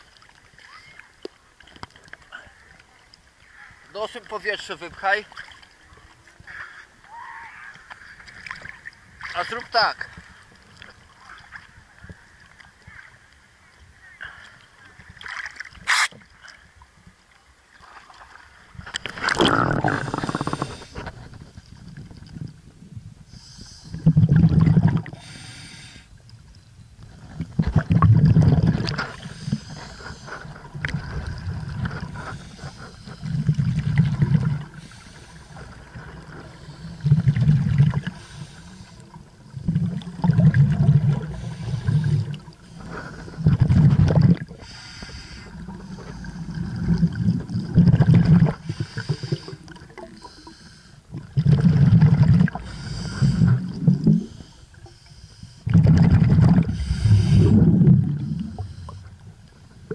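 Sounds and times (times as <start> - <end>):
underwater exhaled air bubbling: 19.0 - 26.1, 27.0 - 59.9.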